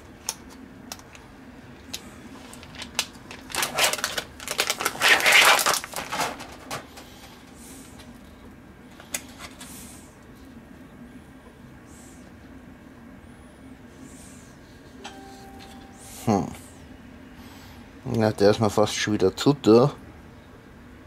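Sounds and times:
plastic packaging crinkling: 0:02.3 - 0:06.7.

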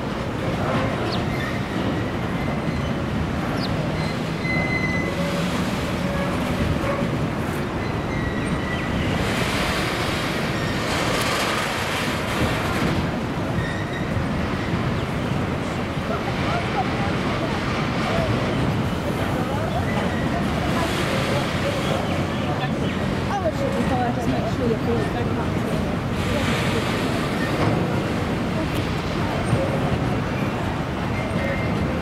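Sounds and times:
freight train rumbling past: 0:00.0 - 0:32.0
faint wheel squeals: 0:03.9 - 0:07.1, 0:13.5 - 0:14.8.

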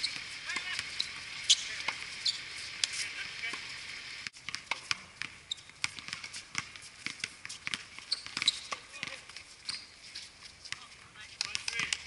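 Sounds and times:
basketball bouncing on court: 0:00.0 - 0:02.0, 0:04.3 - 0:09.3, 0:10.7 - 0:12.0.

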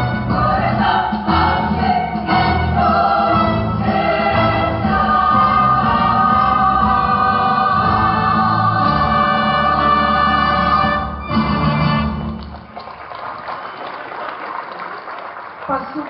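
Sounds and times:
choir singing a march: 0:00.0 - 0:12.1.

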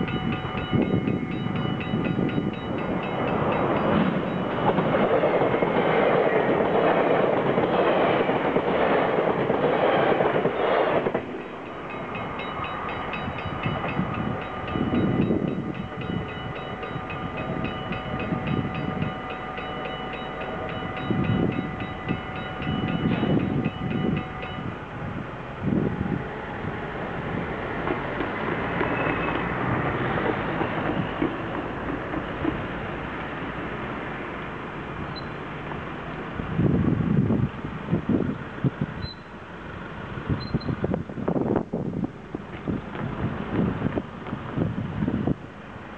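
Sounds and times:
level crossing bells ringing: 0:00.0 - 0:05.1, 0:11.4 - 0:24.8
train wheels rolling: 0:00.0 - 0:24.9, 0:25.8 - 0:36.0.

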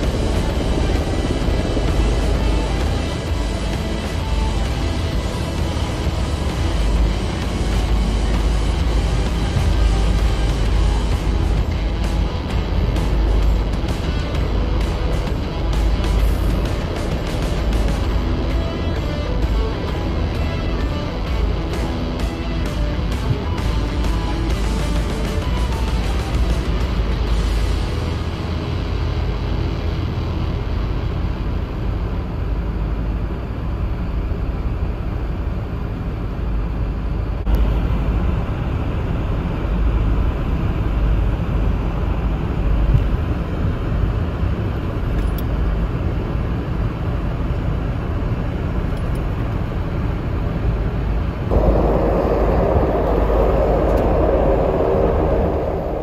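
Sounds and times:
helicopters flying past: 0:00.0 - 0:27.5, 0:51.5 - 0:56.0.

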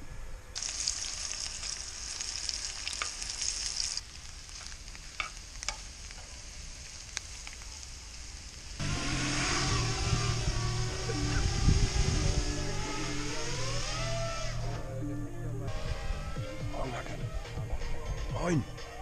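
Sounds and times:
food sizzling in a pan: 0:00.6 - 0:14.6.

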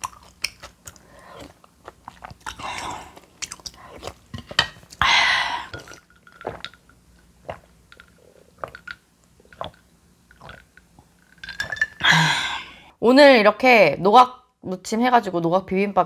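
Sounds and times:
person chewing food: 0:00.0 - 0:11.6.

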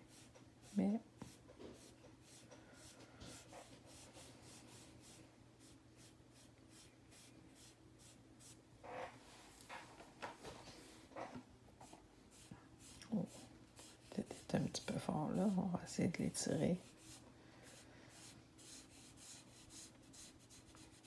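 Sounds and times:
sponge applicator rubbing paper: 0:12.3 - 0:15.6, 0:16.8 - 0:21.0.

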